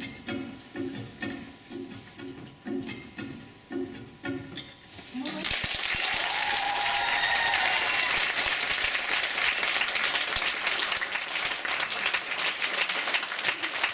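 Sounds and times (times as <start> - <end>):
audience applauding: 5.4 - 13.9.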